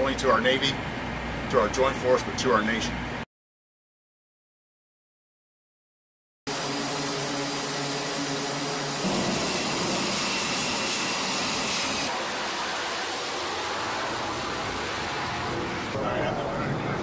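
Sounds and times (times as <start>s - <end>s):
jet engine rushing with high whine: 6.5s - 17.0s.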